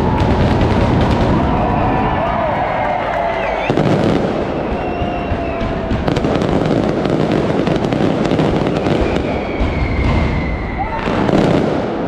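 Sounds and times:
firecrackers banging rapidly: 0.0s - 12.0s
high whistle: 4.4s - 5.9s, 8.6s - 11.1s.

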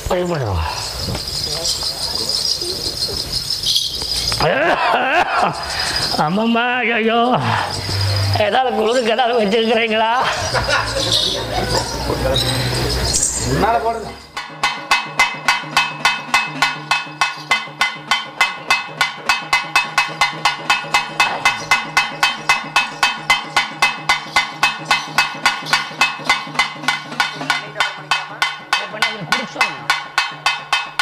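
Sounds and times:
metal-shelled drums beating fast: 0.0s - 31.0s.

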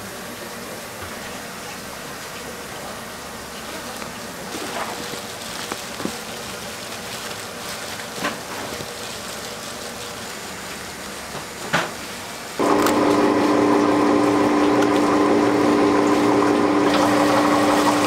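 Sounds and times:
workshop background noise: 0.0s - 18.0s
machine motor humming: 12.6s - 18.0s.

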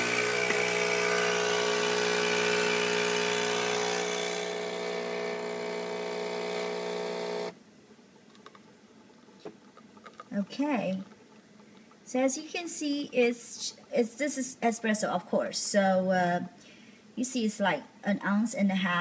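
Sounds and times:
coffee machine pump buzzing: 0.0s - 7.6s.

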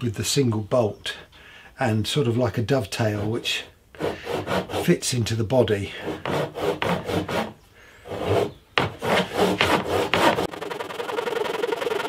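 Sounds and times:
hand saw cutting wood: 3.0s - 5.0s, 6.0s - 12.0s.

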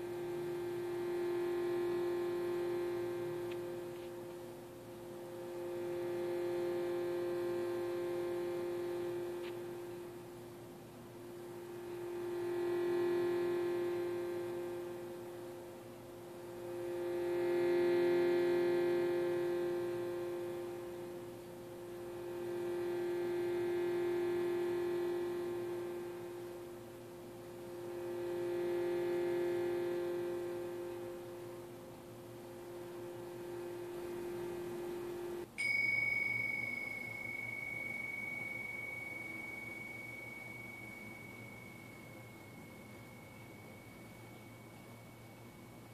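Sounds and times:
singing bowl ringing tone: 0.0s - 45.9s
tingshas ringing: 35.5s - 45.9s.

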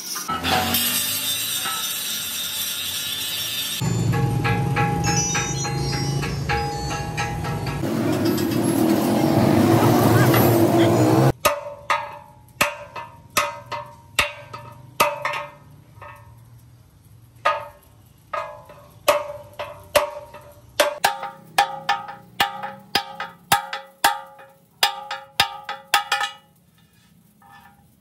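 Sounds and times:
hammer clanging on steel: 3.8s - 9.2s, 10.3s - 16.6s, 17.4s - 27.9s.

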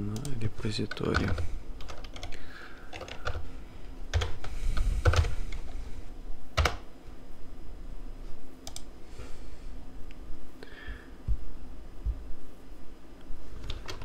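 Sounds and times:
computer keyboard keystrokes: 0.1s - 3.5s, 4.1s - 5.7s, 6.6s - 6.8s, 8.6s - 8.9s, 13.6s - 14.0s.

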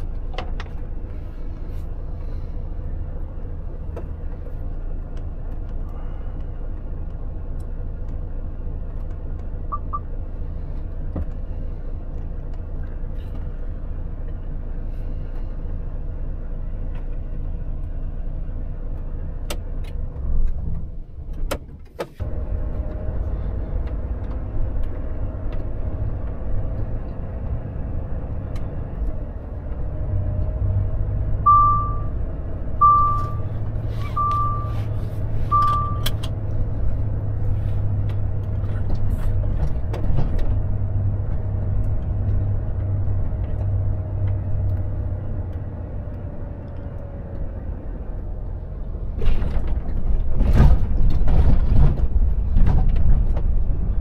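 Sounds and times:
truck engine rumbling: 0.0s - 54.0s
short high beep: 31.5s - 32.1s, 32.8s - 34.9s, 35.5s - 36.1s.

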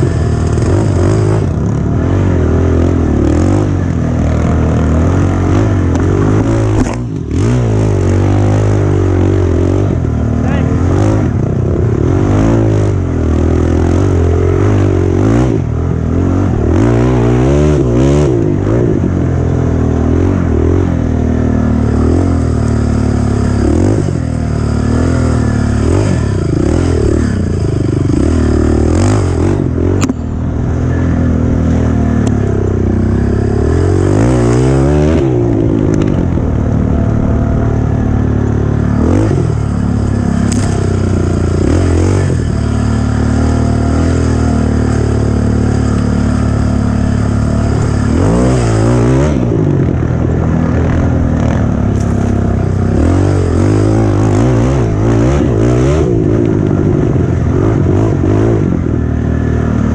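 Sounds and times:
atv engine revving: 0.0s - 59.9s
sharp click: 6.7s - 7.2s.

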